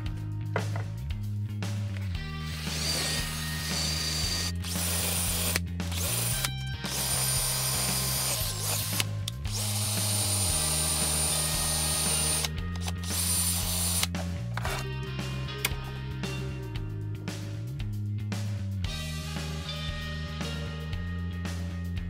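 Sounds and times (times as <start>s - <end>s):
cordless drill whining: 2.4s - 14.8s.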